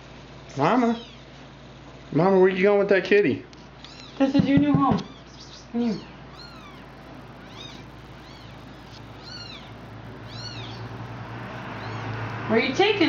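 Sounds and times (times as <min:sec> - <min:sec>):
kitten mewing: 0:03.8 - 0:12.5.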